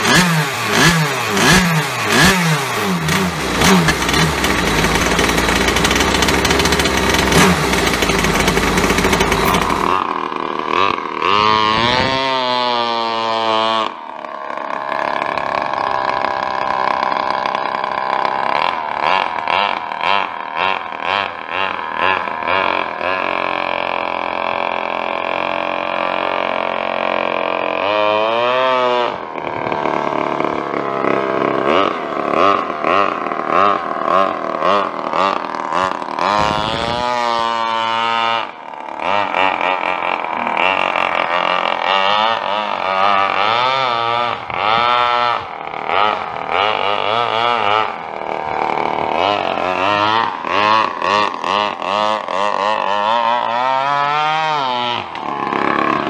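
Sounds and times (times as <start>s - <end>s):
two-stroke engine revving: 0.0s - 56.0s.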